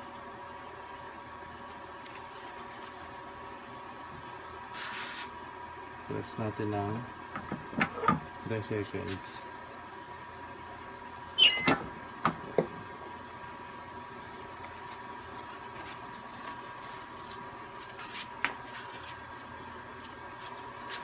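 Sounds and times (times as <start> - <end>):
short falling squeal: 11.4 - 11.8.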